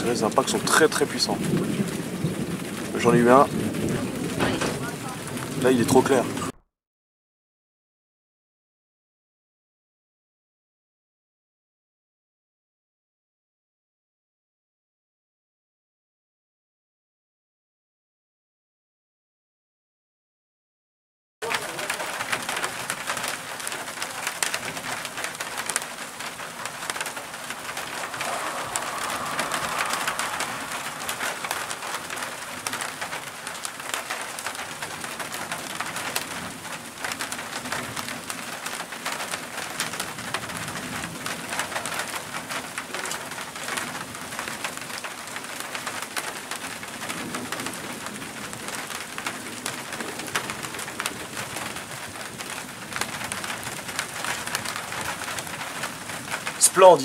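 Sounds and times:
heavy rain patter: 0.0s - 6.6s, 21.4s - 57.0s.

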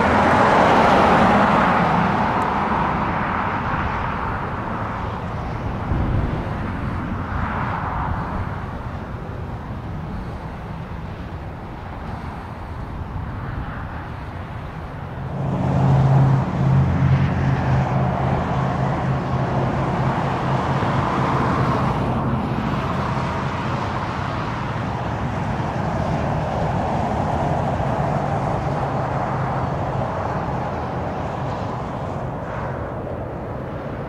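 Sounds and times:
propeller aircraft engine drone: 0.0s - 34.0s.

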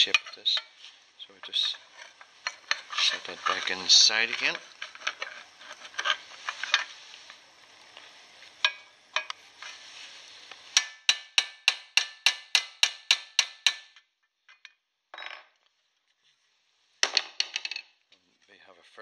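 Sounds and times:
hammer striking metal: 10.8s - 14.0s.

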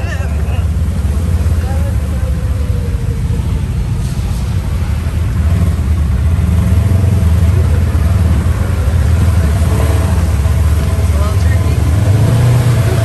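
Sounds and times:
buggy engine rumbling: 0.0s - 13.0s.

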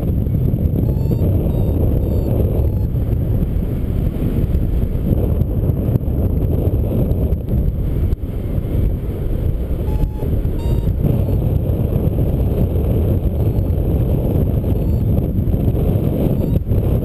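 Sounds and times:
wind buffeting microphone: 0.0s - 17.0s
short electronic beeps: 0.8s - 3.0s, 9.9s - 11.4s, 14.6s - 15.1s, 16.3s - 16.7s.

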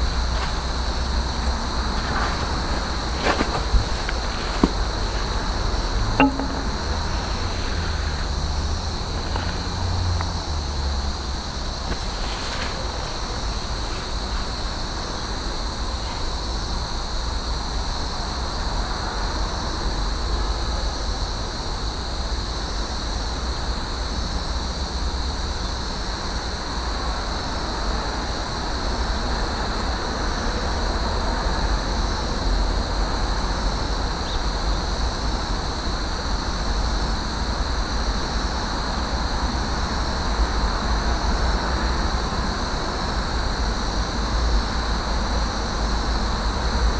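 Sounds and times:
high-pitched hum: 5.9s - 7.7s.

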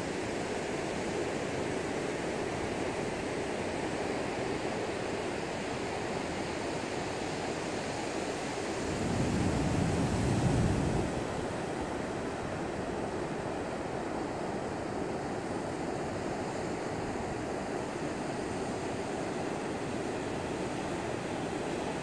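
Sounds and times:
ocean surf breaking on beach: 8.2s - 22.0s.

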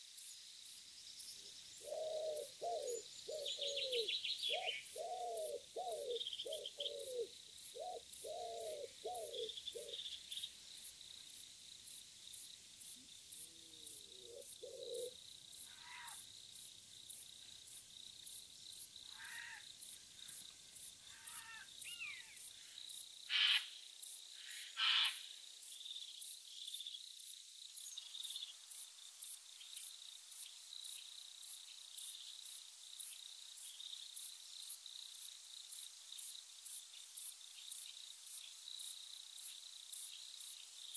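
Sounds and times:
crickets chirping: 0.0s - 40.9s
wood pigeons cooing: 1.8s - 10.0s, 14.1s - 15.2s
short bird calls: 21.2s - 22.4s, 23.3s - 23.7s, 24.6s - 25.2s.

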